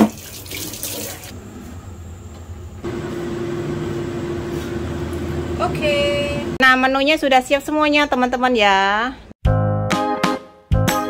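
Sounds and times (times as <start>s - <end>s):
tap water running into sink: 0.0s - 1.3s
steady mechanical hum: 1.0s - 6.8s.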